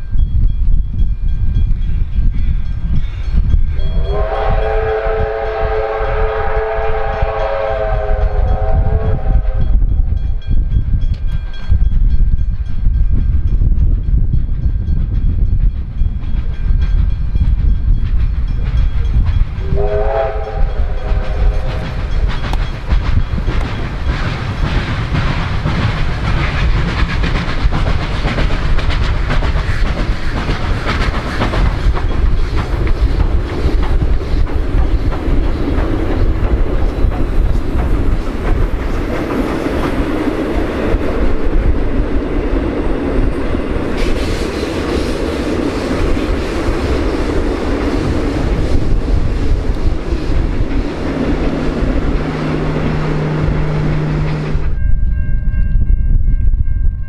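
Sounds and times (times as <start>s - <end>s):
train passing with rushing clatter: 0.0s - 57.0s
train rumbling: 0.0s - 57.0s
steam locomotive whistle: 3.9s - 10.0s, 19.6s - 22.1s, 51.8s - 54.8s.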